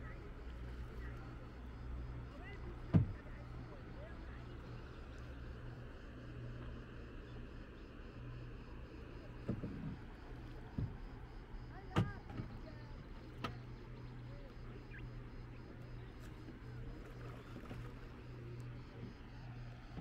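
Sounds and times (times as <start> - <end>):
steady low hum: 0.0 - 20.0
paddle knocking plastic kayak: 2.4 - 3.6, 11.7 - 13.6.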